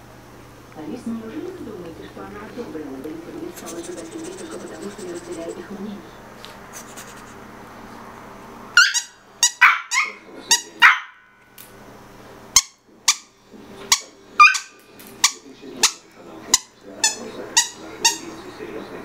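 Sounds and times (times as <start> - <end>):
puppies yapping: 8.8 - 11.2, 13.9 - 16.0.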